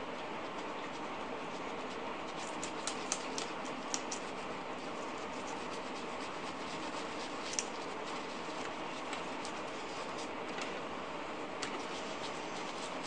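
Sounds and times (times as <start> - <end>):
wipe rubbing scratchy ticks: 0.4 - 10.4, 11.6 - 13.0.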